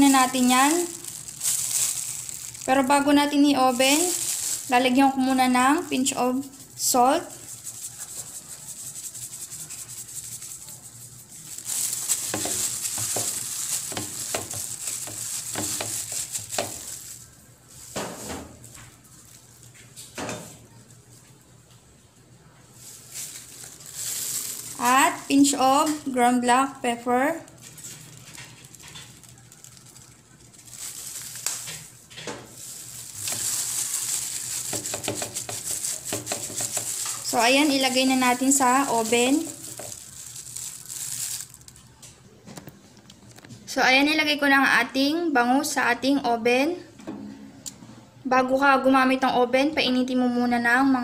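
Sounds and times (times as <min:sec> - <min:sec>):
plastic glove rubbing wet fish: 0:00.0 - 0:18.0, 0:22.8 - 0:26.0, 0:27.2 - 0:41.8.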